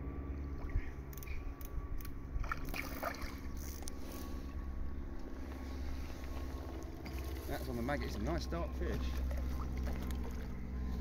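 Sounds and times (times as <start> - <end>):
steady low hum: 0.0 - 11.0
fish splashing in water: 2.4 - 3.6, 9.1 - 10.6.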